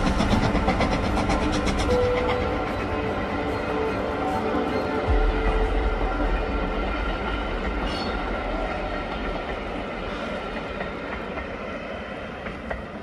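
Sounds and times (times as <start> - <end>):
steam train rolling on track: 0.0 - 13.0.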